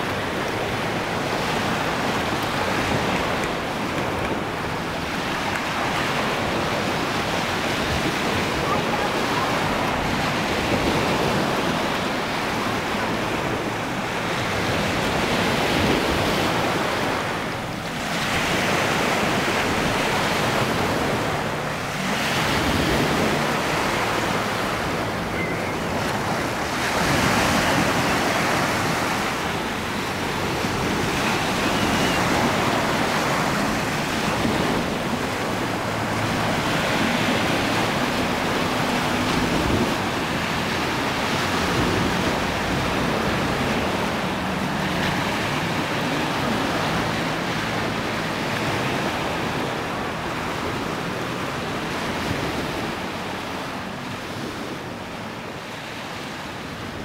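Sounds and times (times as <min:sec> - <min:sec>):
breaking waves: 0:00.0 - 0:57.0.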